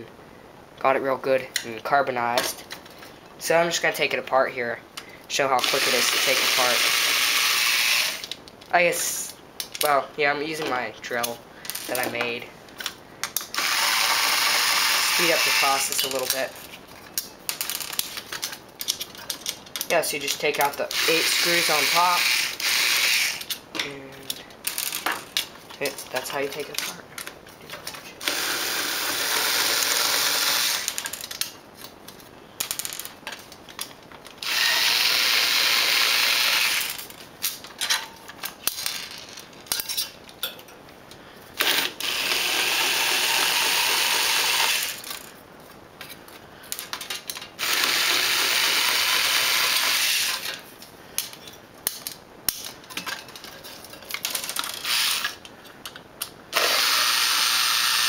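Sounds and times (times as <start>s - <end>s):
electric drill running: 5.6s - 8.3s, 13.5s - 15.9s, 20.9s - 23.5s, 28.2s - 31.0s, 34.4s - 37.0s, 41.6s - 45.1s, 47.6s - 50.6s, 56.6s - 58.0s
handling clicks and clinks: 15.2s - 20.9s, 37.0s - 40.9s, 50.4s - 56.3s.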